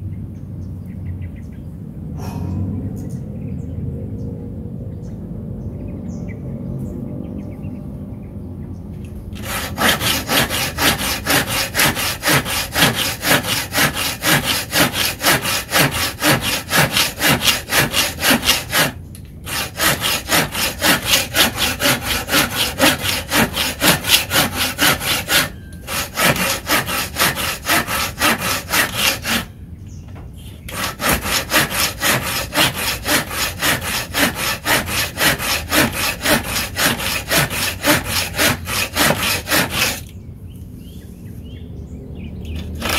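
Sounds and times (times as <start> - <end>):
hand saw cutting wood: 9.3 - 29.5, 30.7 - 40.1, 42.5 - 42.9.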